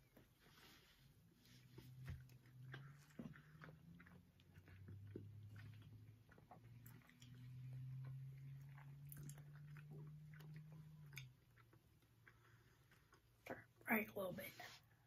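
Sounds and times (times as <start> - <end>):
low steady hum: 0.0 - 15.0
chewing and mouth noises: 1.4 - 13.8.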